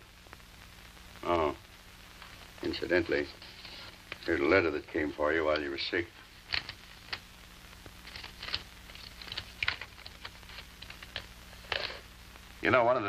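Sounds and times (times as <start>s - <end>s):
faint steady hum: 0.0s - 13.0s
paper rustling and crinkling: 3.4s - 4.4s, 6.4s - 7.2s, 8.0s - 12.0s.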